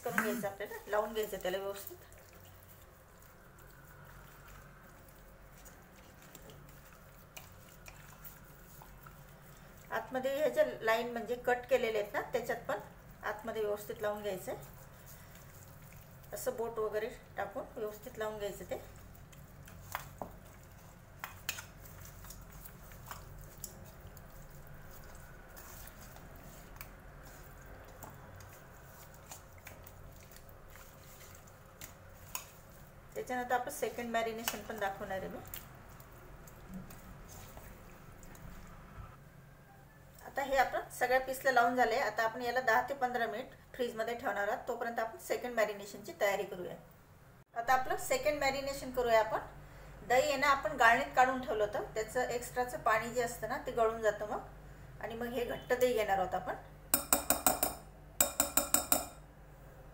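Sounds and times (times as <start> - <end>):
wet squishing of chicken: 0.4 - 11.3, 11.9 - 38.9.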